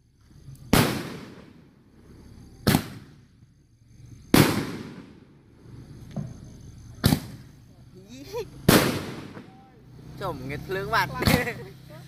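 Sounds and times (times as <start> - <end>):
firework shots banging: 0.7 - 1.7, 2.6 - 3.3, 4.3 - 5.4, 7.0 - 7.5, 8.6 - 9.6.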